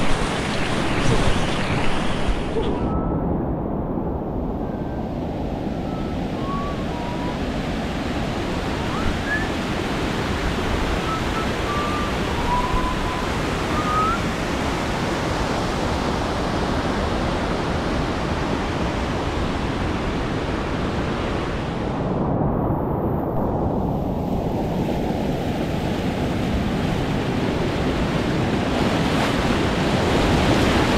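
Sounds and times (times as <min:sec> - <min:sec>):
faint whistle-like tones: 0:02.5 - 0:03.6, 0:04.2 - 0:09.7, 0:11.0 - 0:14.3
whitewater rapids roaring: 0:08.4 - 0:14.8.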